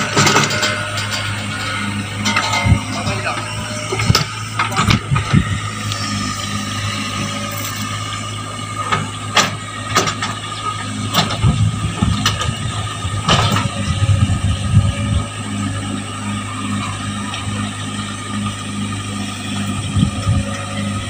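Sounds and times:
metal clanks: 0.0 - 6.0
excavator engine whining: 0.0 - 21.0.

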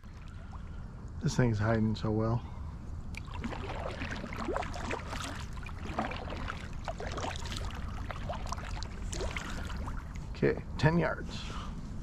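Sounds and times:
boat engine low rumble: 0.0 - 12.0
water splashing along hull: 3.1 - 10.4.

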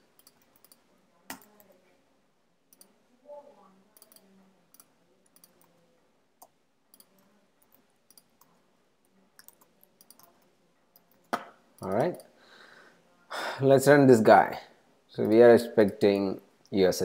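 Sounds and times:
keyboard typing and clicking: 0.0 - 1.8, 4.0 - 5.8, 6.4 - 8.6, 9.4 - 12.3.

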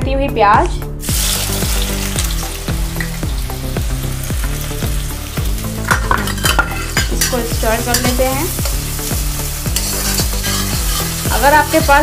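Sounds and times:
background music beat: 0.0 - 12.0
onions sizzling in hot oil: 1.0 - 12.0
spatula scraping: 5.9 - 8.8, 9.7 - 11.4.

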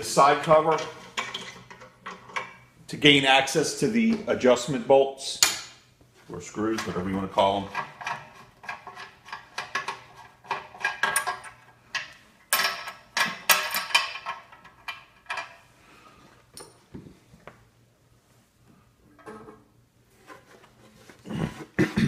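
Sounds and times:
metal cover clattering: 0.6 - 2.6, 19.1 - 19.7
quiet handling of metal cover: 19.1 - 21.8.

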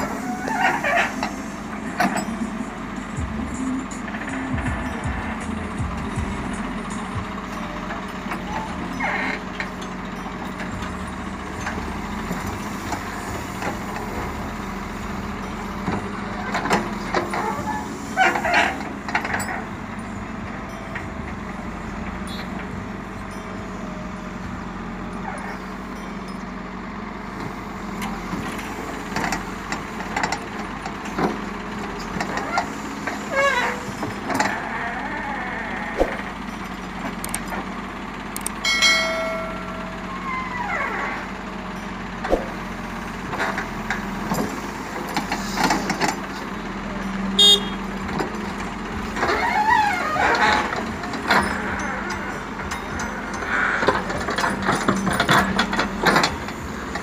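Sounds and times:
bucket scraping squealing and clanking: 0.0 - 1.5, 16.5 - 19.7, 32.2 - 36.5, 49.0 - 52.3
diesel engine running: 0.0 - 57.0.

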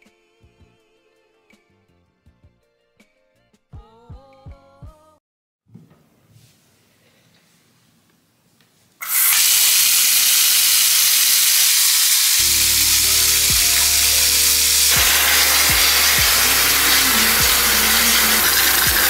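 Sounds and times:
bath tap running into tub: 9.0 - 19.0.

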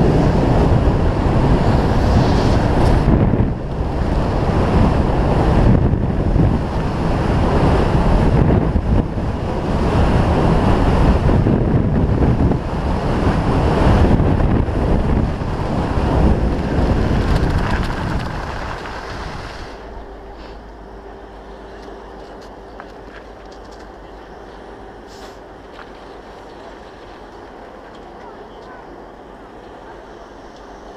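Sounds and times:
wind buffeting microphone: 0.0 - 27.8
skis hissing on hard snow: 1.8 - 3.0, 18.0 - 20.6.

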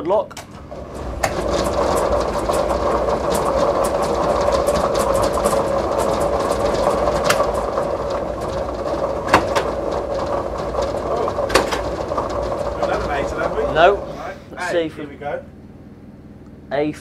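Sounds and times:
steady motor hum: 0.0 - 17.0
balls clattering in globe: 0.4 - 14.6.

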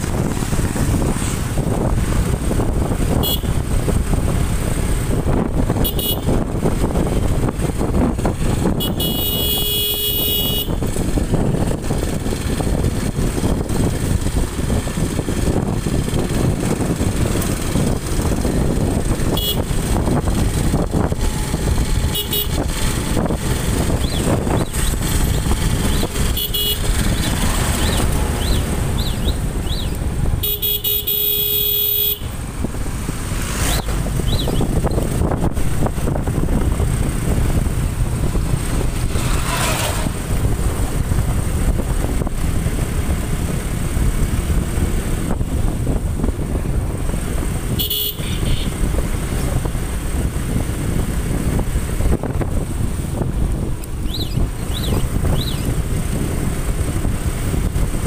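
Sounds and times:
motorcycle wind and road noise: 0.0 - 58.0
horn sounding: 3.1 - 3.6, 5.8 - 6.4, 8.8 - 10.9, 19.3 - 19.8, 22.1 - 22.7, 26.1 - 27.4, 29.0 - 32.4, 47.7 - 48.9.

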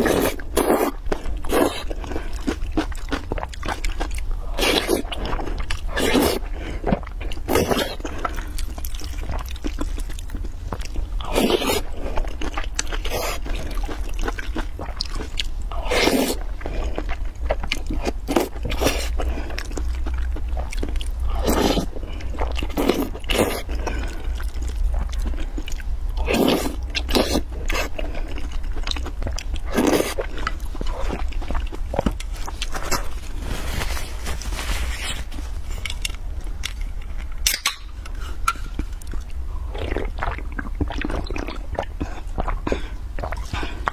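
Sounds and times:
person slurping and chewing: 0.0 - 36.8, 38.0 - 43.9
low hum: 27.5 - 43.9.

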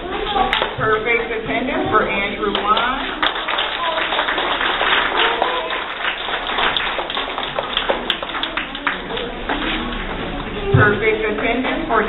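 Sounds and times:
faint voices: 0.0 - 12.0
audience clapping: 2.5 - 10.6.

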